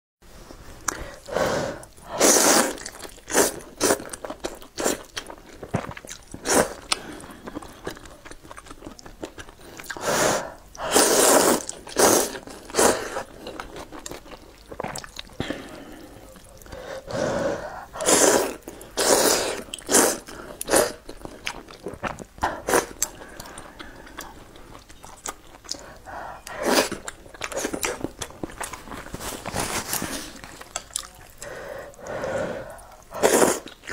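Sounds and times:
slurping noodles: 0.9s - 4.2s, 9.8s - 13.8s, 16.8s - 21.4s, 25.7s - 28.1s, 31.4s - 33.8s
chewing: 2.7s - 10.0s, 11.5s - 16.9s, 18.0s - 33.9s.

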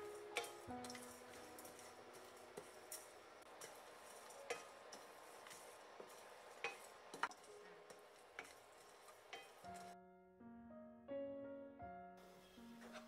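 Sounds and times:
spices rattling in a pan: 0.0s - 10.0s
spoon clicking against pan: 9.3s - 9.6s.

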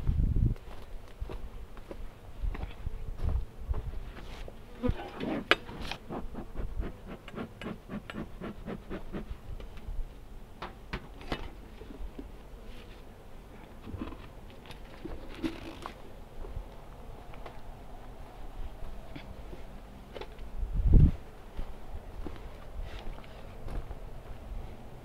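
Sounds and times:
honeybees buzzing: 4.4s - 9.2s.

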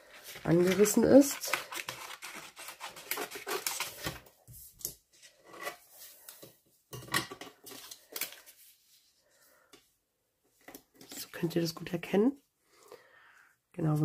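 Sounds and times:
stiff paper crinkling: 0.0s - 4.3s
scissors snipping paper: 0.3s - 4.2s.

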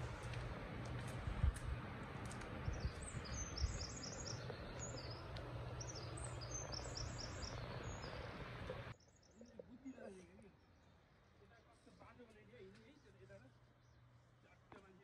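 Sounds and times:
songbird singing: 2.4s - 15.0s
bird chirps: 2.6s - 11.4s.

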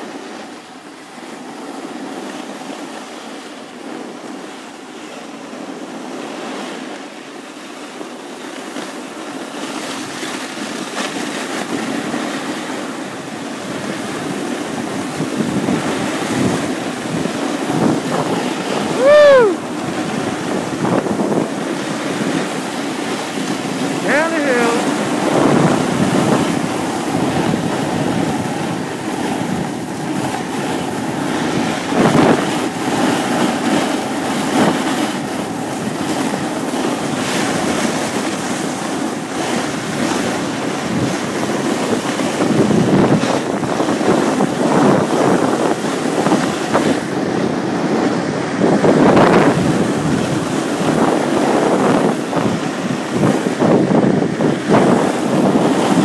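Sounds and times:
wind rushing over microphone: 0.0s - 56.0s
snowboard scraping over snow: 9.3s - 56.0s.

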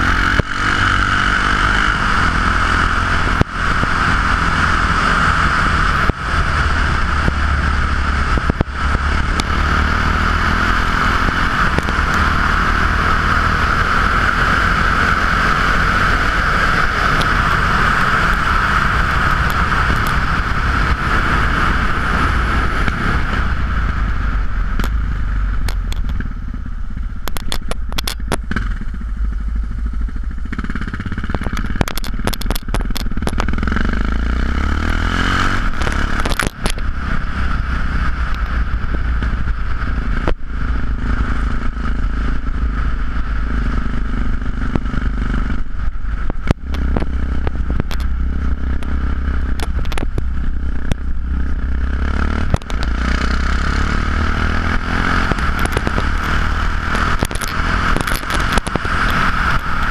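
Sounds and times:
wind noise: 0.0s - 29.6s, 30.3s - 59.9s
motorcycle engine running: 0.0s - 59.9s
clicks and rattles: 27.2s - 28.4s, 31.2s - 33.5s, 35.8s - 36.9s, 47.8s - 48.1s, 49.6s - 50.2s, 56.9s - 59.9s.

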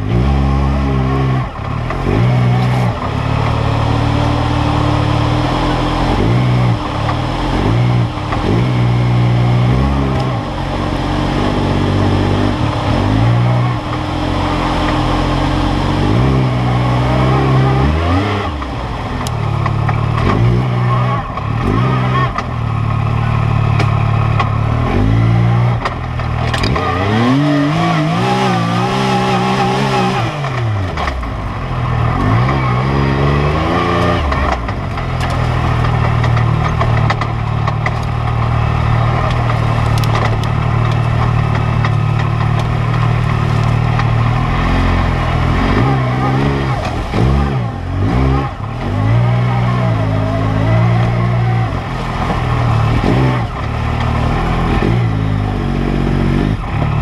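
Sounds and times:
engine revving: 0.0s - 57.0s.

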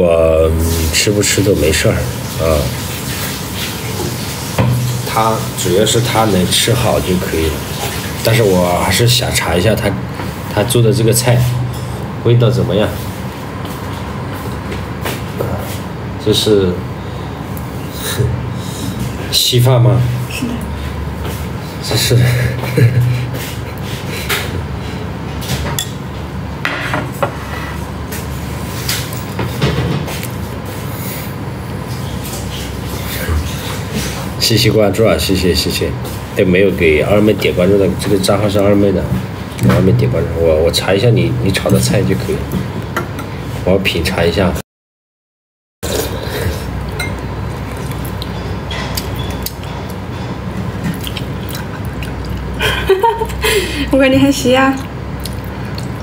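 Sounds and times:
spoon clinking against bowl: 47.0s - 47.2s.

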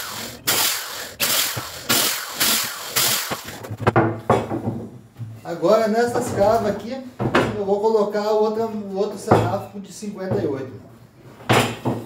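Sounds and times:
electric drill boring through wood: 0.0s - 3.7s
wooden boards knocking: 3.4s - 5.0s.

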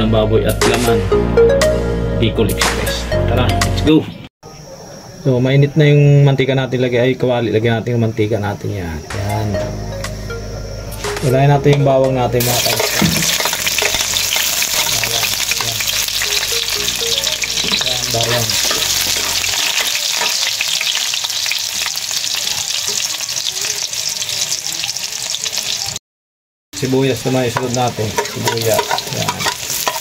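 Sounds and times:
spoon scraping pan: 12.4s - 16.5s, 17.6s - 20.9s, 27.6s - 30.0s
garlic sizzling in oil: 12.4s - 26.0s, 26.8s - 30.0s.

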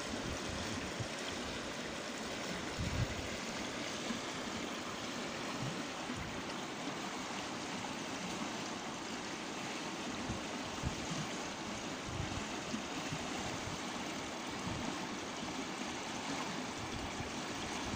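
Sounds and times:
stream water flowing: 0.0s - 17.9s.

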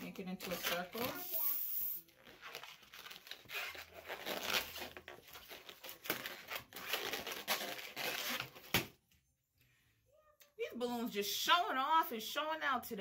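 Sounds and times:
balloon squeaking and rubbing: 0.4s - 8.8s.

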